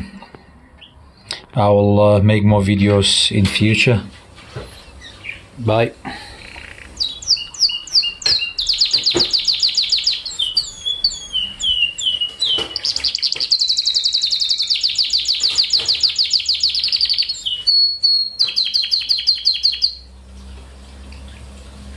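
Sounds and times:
canary singing: 4.7s - 5.6s, 6.3s - 20.2s.

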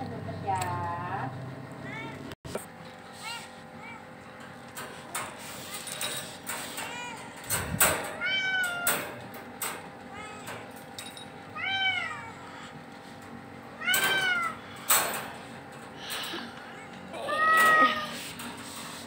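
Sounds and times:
cat meowing: 11.6s - 12.7s, 13.8s - 14.6s, 16.7s - 18.2s.

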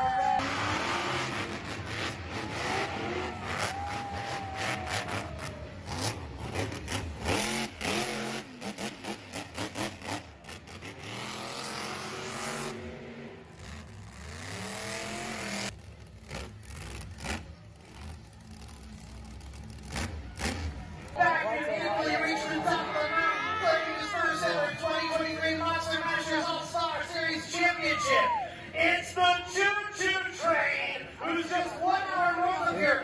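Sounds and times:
monster truck engine revving: 0.2s - 21.2s.

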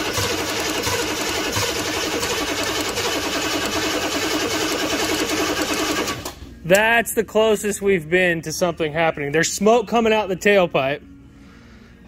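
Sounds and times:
diesel engine cranking: 0.0s - 6.4s.

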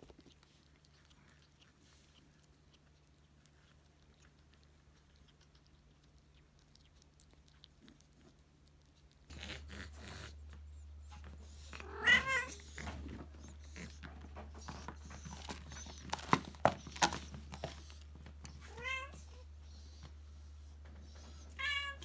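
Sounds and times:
cat meowing: 11.8s - 12.8s.

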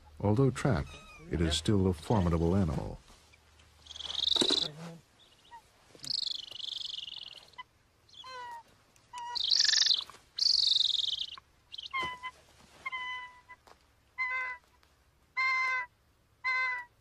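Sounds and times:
eagle yelps: 3.8s - 4.7s, 5.3s - 13.6s, 14.2s - 14.7s, 15.4s - 17.0s.

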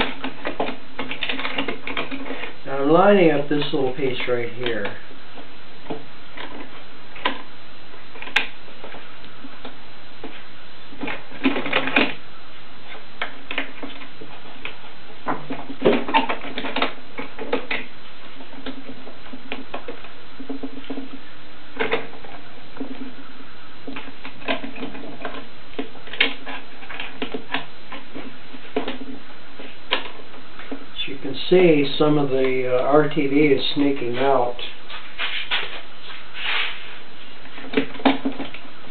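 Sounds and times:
metal clamps clicking and knocking: 0.0s - 2.4s
steady background hum: 0.0s - 38.9s.

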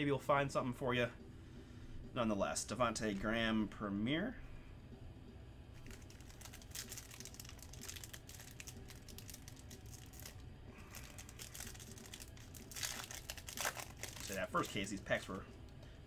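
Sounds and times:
foil wrapper tearing and crinkling: 5.8s - 15.0s.

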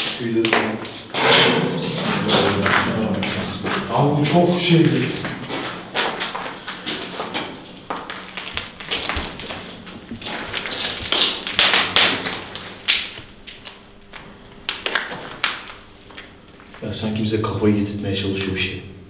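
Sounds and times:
footsteps on rubble: 1.8s - 16.8s.

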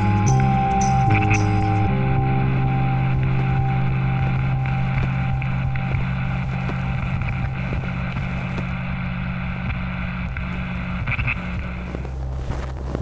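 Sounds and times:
low synthesized drone: 0.0s - 12.7s
faint clicks and crackles: 3.3s - 13.0s.

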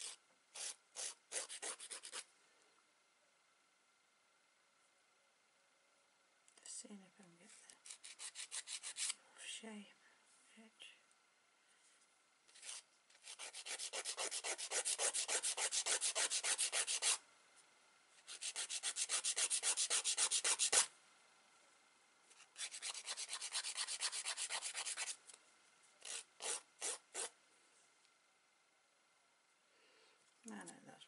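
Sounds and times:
nail file rasping: 0.0s - 2.2s, 7.8s - 9.2s, 12.6s - 17.2s, 18.3s - 20.9s, 22.6s - 25.2s, 26.0s - 27.3s.

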